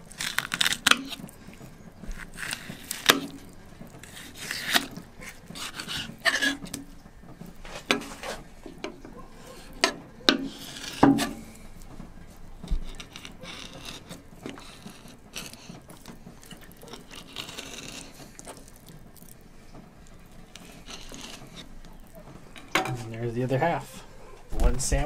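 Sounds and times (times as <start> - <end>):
knife scraping and tapping fish: 0.1 - 19.1, 19.7 - 23.1.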